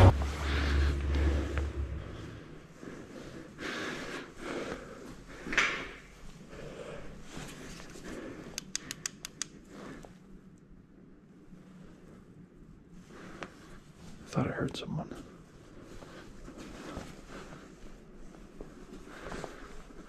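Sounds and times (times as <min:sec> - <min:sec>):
sharp clicks: 0:08.6 - 0:09.6.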